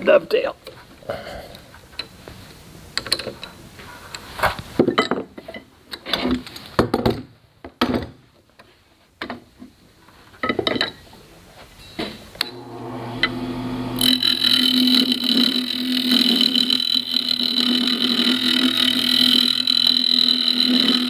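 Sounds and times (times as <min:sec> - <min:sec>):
metal tools clinking and knocking: 0:10.4 - 0:11.0.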